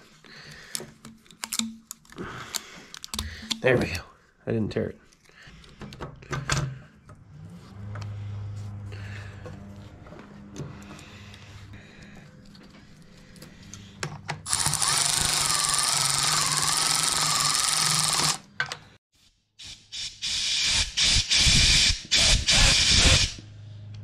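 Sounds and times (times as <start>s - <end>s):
cordless ratchet motor whine: 14.5s - 18.5s.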